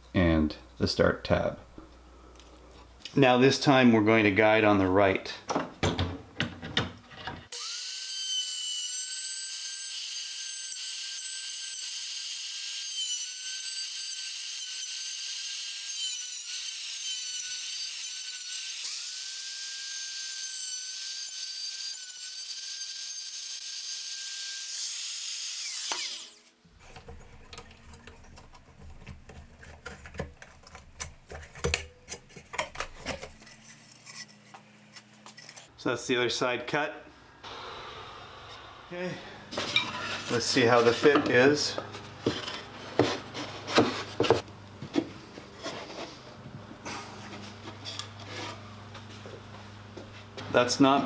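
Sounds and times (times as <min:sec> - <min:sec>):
board being handled clicks and knocks: 0:26.9 - 0:33.4.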